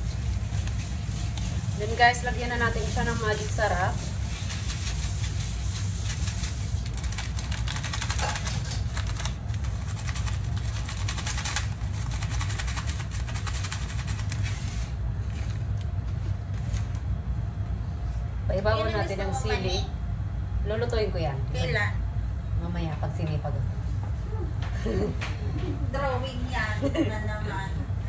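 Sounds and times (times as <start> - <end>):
broth boiling in a pot: 0.0 - 17.5.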